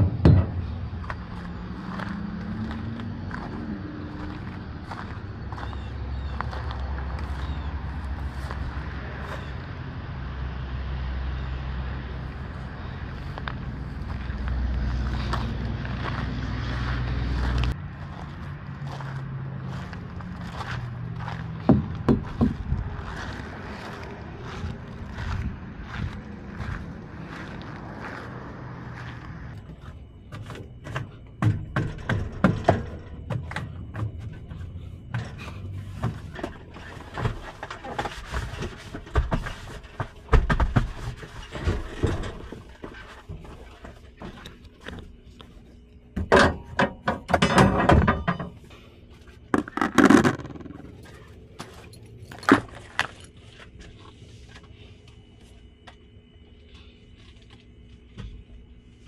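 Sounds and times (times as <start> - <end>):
knocks and thumps at truck door: 0.0 - 0.7, 21.7 - 22.6.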